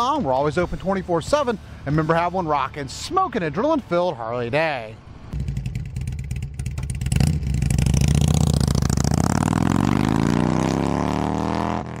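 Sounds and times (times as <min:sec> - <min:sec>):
motorcycle engine revving: 0:05.3 - 0:12.0.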